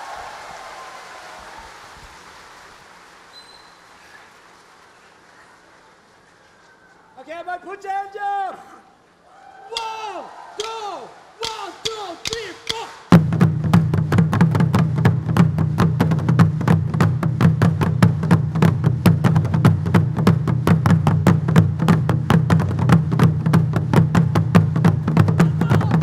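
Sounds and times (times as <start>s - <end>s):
fast drumbeat of hand drums: 11.4s - 26.0s.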